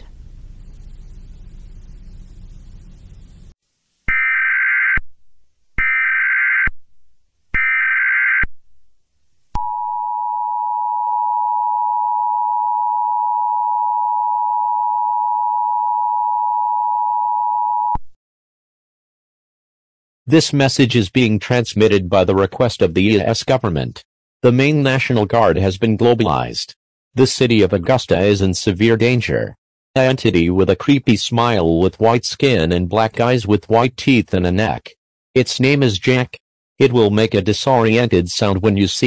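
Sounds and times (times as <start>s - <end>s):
data burst squawks: 4.1s - 5.0s.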